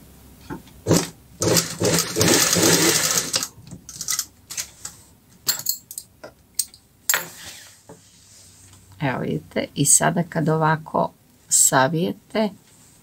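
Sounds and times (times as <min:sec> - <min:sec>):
sewing machine stitching: 0:00.9 - 0:04.2.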